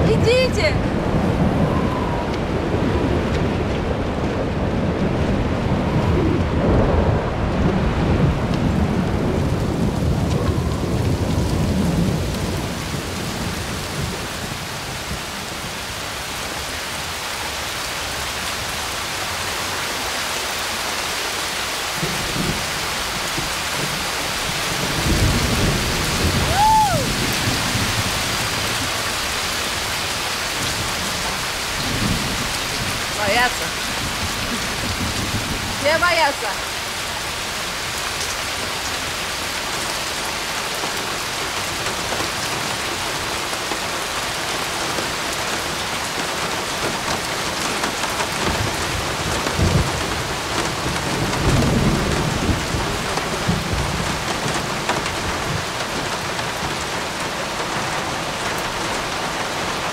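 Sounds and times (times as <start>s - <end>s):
rolling thunder: 0.0s - 15.4s, 22.0s - 29.9s, 30.6s - 35.8s, 46.9s - 56.6s
rain on pavement: 0.0s - 59.9s.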